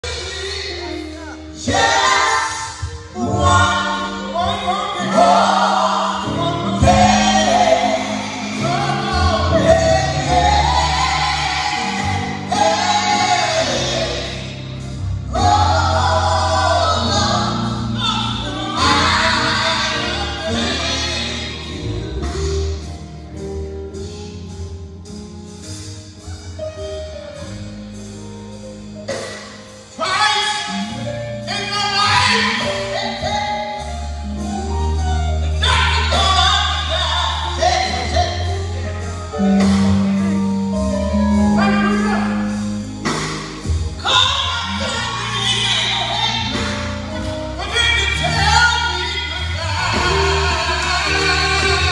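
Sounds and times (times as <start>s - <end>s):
vocal group singing in harmony: 0.0s - 22.9s, 35.5s - 51.9s
band with bass line: 0.0s - 51.9s.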